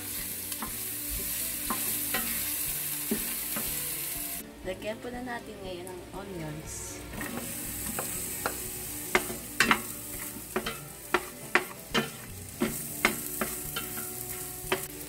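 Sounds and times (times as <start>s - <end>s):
food sizzling in hot oil: 0.0s - 4.5s, 7.0s - 15.0s
wooden spatula knocking on pot: 10.5s - 14.1s.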